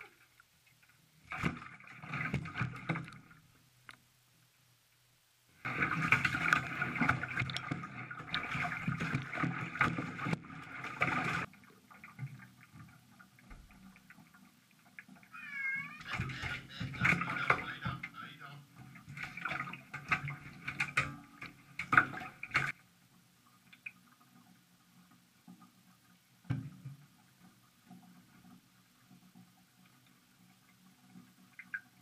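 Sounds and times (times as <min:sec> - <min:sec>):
water splashing: 0:00.0 - 0:04.1, 0:05.6 - 0:22.8
cat meowing and yowling: 0:15.3 - 0:16.4.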